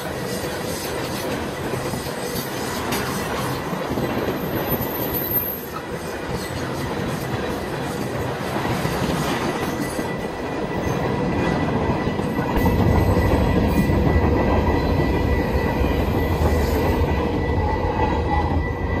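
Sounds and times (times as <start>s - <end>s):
freight train wheels rumbling: 0.0s - 19.0s
high wheel squeal: 1.8s - 8.2s.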